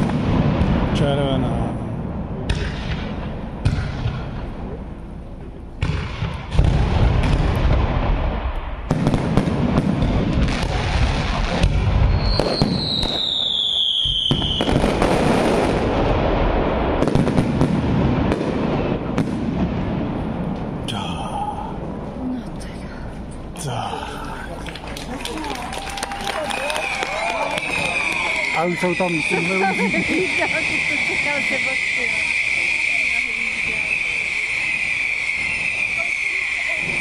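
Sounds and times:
continuous rumble: 0.0 - 12.1, 15.7 - 28.6
fireworks bangs and crackling: 0.0 - 22.1, 24.7 - 37.0
firework whistle falling in pitch: 12.1 - 14.8, 25.8 - 37.0.

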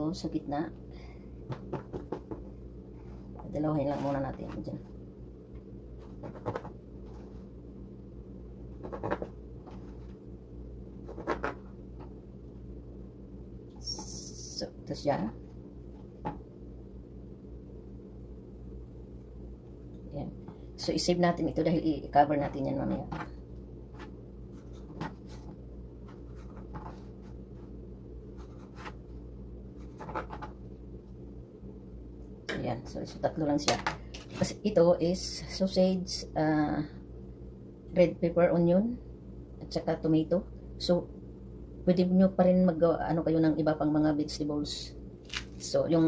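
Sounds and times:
steady low hum: 0.0 - 46.0
knife rasping through bread: 11.0 - 11.6.

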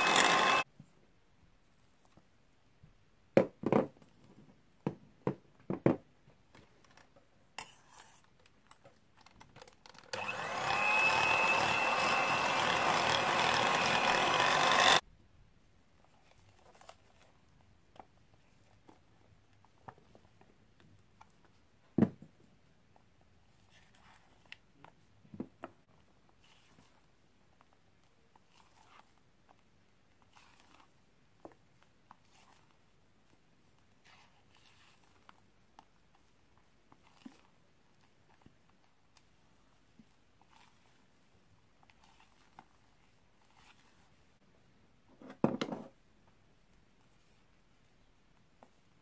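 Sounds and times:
electric hand mixer running: 0.0 - 0.6, 10.2 - 15.0.

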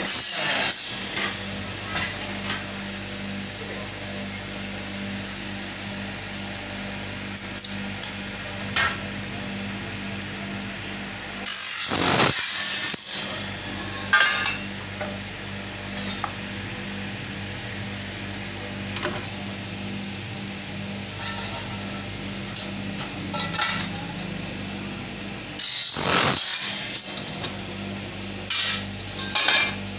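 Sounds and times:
cutting machine motor humming: 0.0 - 29.9
blade screeching through aluminium: 11.4 - 14.8, 25.6 - 27.2.

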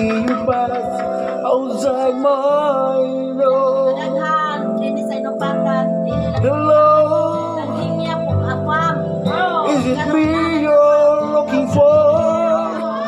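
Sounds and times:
person singing: 0.0 - 4.4, 6.1 - 13.0
guitar: 0.0 - 13.0
steady bass line: 6.0 - 13.0.

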